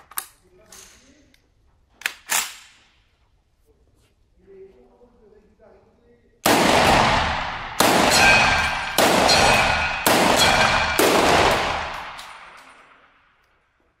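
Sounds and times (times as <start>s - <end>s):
shotgun shots echoing: 6.4s - 13.4s.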